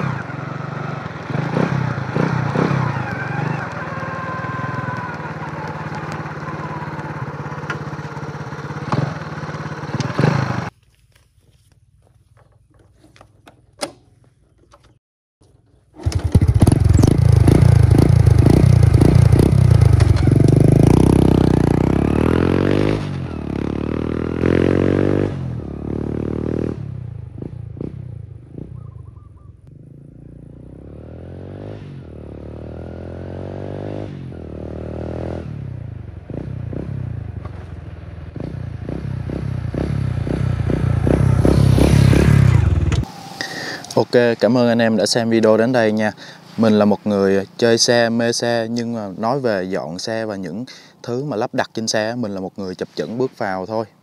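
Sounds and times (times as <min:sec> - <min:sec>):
motorcycle engine revving: 0:00.0 - 0:10.8, 0:15.9 - 0:44.0, 0:45.1 - 0:48.4.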